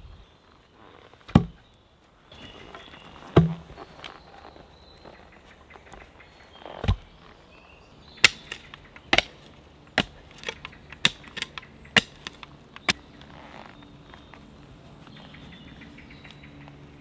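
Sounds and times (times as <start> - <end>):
shovel chopping into soil: 8.2 - 13.1.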